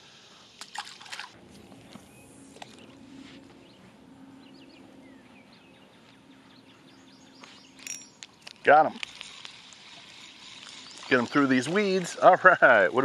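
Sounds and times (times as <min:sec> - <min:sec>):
low steady hum: 0:00.0 - 0:13.0
fish splashing into water: 0:00.6 - 0:01.4.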